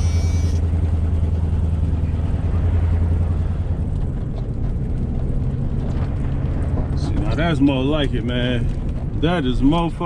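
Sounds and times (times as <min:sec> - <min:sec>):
truck engine drone from inside cab: 0:00.0 - 0:10.0.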